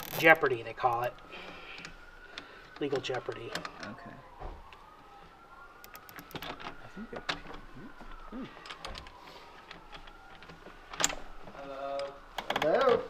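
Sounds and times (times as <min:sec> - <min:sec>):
tool clicks and taps on metal: 0:05.8 - 0:07.6.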